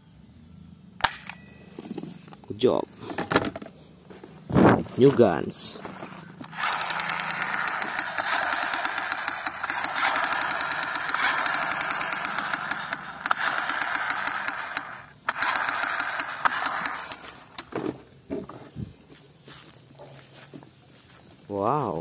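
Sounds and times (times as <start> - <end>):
toy gun rapid-fire buzz: 6.5 - 17.7.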